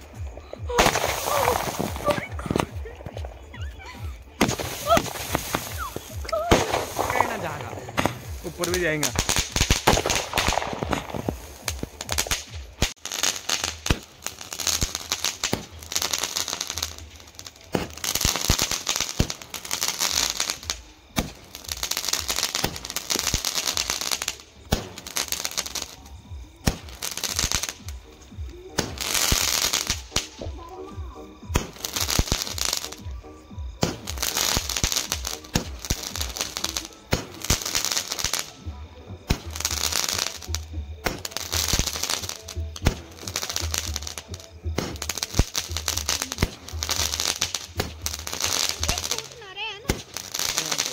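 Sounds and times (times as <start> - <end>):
firework rockets launching with hiss: 0.0 - 50.9
fireworks crackling and popping: 0.0 - 50.9.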